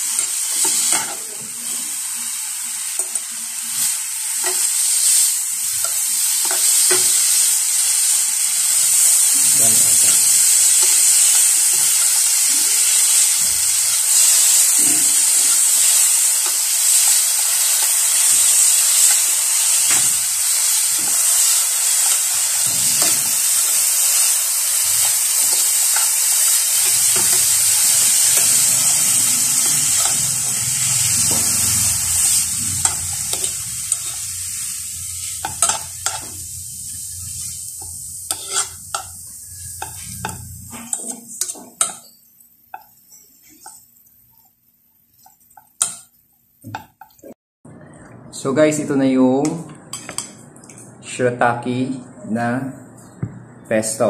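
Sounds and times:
noodles sizzling in a pan: 0:00.0 - 0:47.3
metal tongs scraping a pan: 0:00.2 - 0:01.8, 0:08.7 - 0:31.6, 0:32.2 - 0:42.3.

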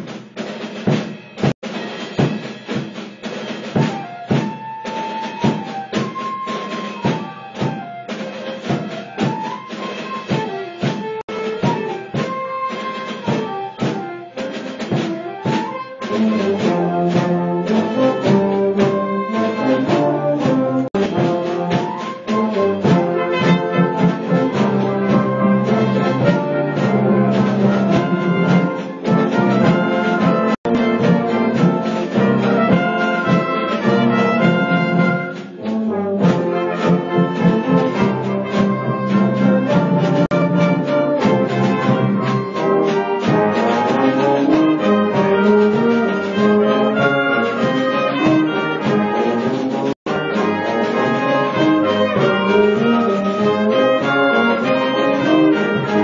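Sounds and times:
brass band chords: 0:00.0 - 0:56.0
percussion beats: 0:00.0 - 0:56.0.

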